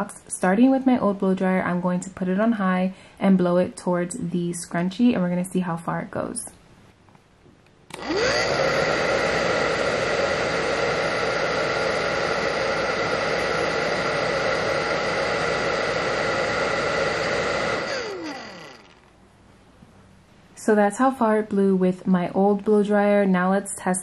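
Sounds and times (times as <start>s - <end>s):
hair dryer running: 7.9s - 19.1s.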